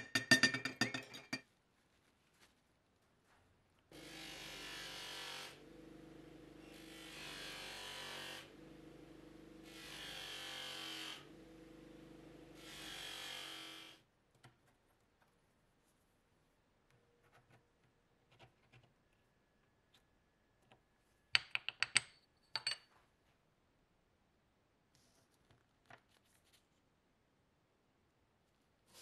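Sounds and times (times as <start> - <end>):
bench grinder motor humming: 3.9 - 14.0
metal scraping on grinding wheel: 4.0 - 14.0.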